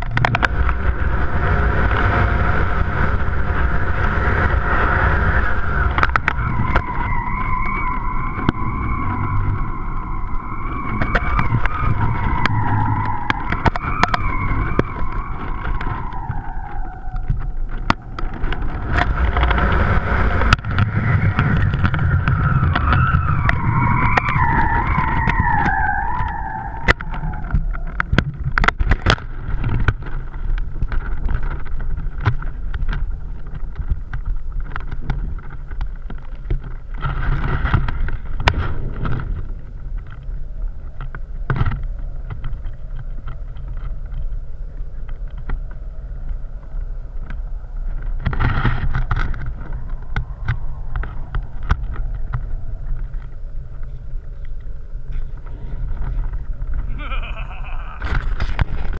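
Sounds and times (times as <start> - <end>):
sharp clicks and knocks: 0.0 - 1.0, 5.8 - 7.8, 10.9 - 40.2
wind buffeting microphone: 0.0 - 58.9
wavering whistle-like tone: 6.2 - 17.4, 22.0 - 27.6.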